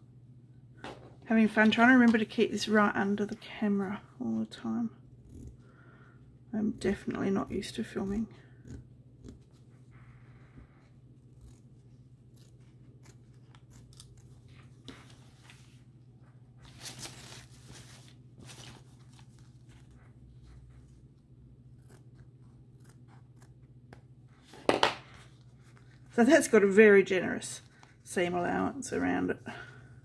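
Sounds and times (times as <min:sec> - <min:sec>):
scissors snipping fabric: 0:06.6 - 0:09.7, 0:11.2 - 0:14.7, 0:21.7 - 0:24.0.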